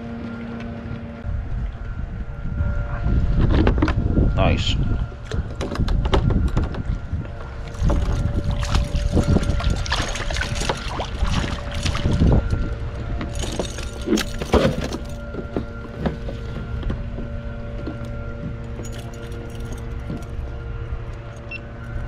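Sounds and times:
fish splashing in water: 7.6 - 12.4.

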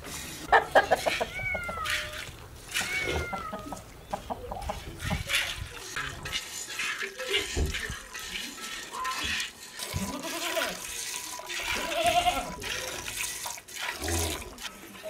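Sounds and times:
farm animal calling: 0.5 - 5.9
milk squirting into metal pot: 5.0 - 15.0.

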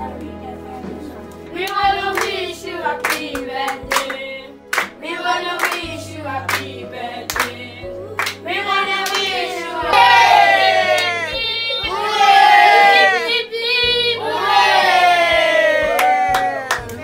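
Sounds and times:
hand claps: 1.6 - 2.4, 3.0 - 5.0, 5.6 - 5.9, 6.5 - 6.7, 7.3 - 7.6, 8.2 - 8.4, 9.0 - 9.3, 15.8 - 17.0
children singing together: 1.6 - 15.8.

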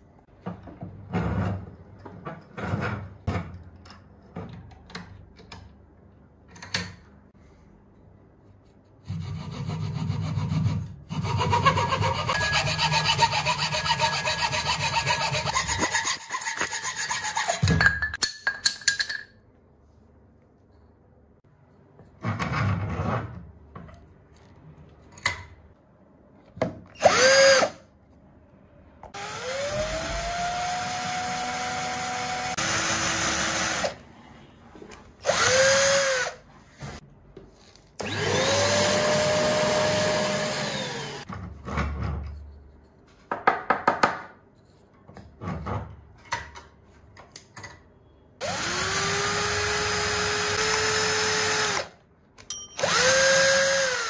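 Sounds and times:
electric drill boring into wood: 27.0 - 27.8, 29.2 - 34.0, 35.3 - 36.4, 38.0 - 41.2, 48.4 - 52.0, 52.8 - 54.0.

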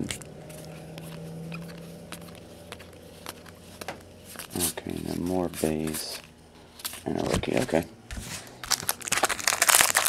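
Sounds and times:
trading cards clicking and rustling: 0.0 - 7.8, 8.4 - 10.0
steady low hum: 0.0 - 10.0.

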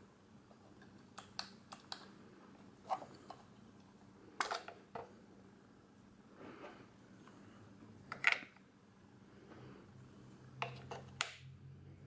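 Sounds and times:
plastic clicks and snaps: 0.8 - 2.1.

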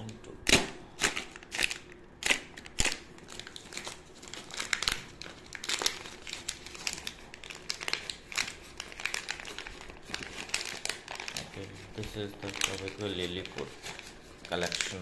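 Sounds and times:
paper and cardboard rustling: 3.3 - 15.0.

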